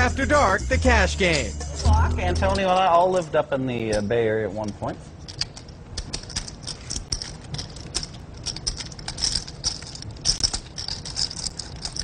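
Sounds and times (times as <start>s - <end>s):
poker chips clicking: 5.3s - 12.0s.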